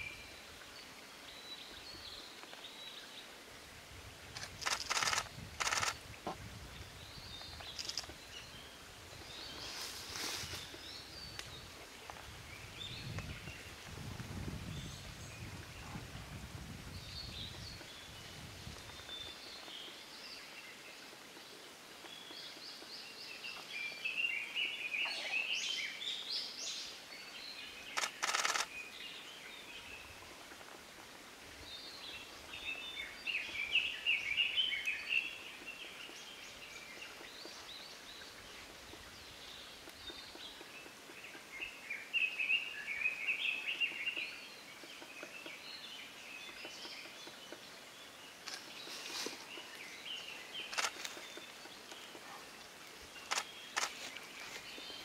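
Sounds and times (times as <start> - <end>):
small birds chattering: 4.4 - 6.0.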